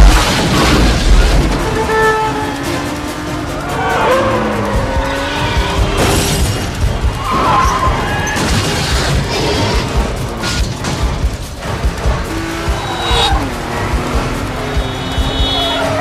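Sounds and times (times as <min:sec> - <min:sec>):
crash impacts: 0:00.0 - 0:03.7
car engines running hard: 0:00.0 - 0:16.0
soundtrack music: 0:00.0 - 0:16.0
tyres squealing: 0:12.6 - 0:16.0.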